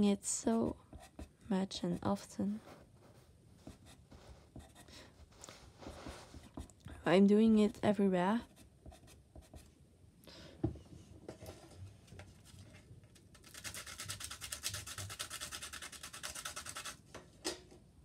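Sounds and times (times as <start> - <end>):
pastel pencil scraping: 13.4 - 17.0.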